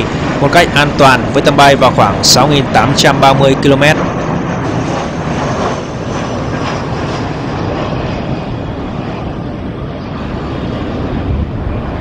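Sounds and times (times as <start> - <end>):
jet airliner passing overhead: 0.0 - 12.0.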